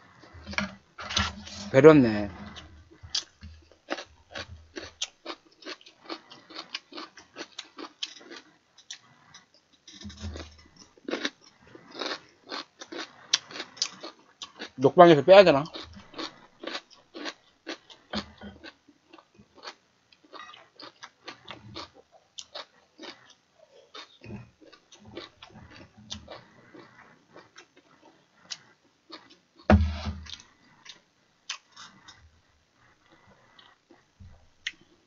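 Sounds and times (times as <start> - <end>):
chewing and smacking: 2.3 - 14.8, 15.7 - 29.7.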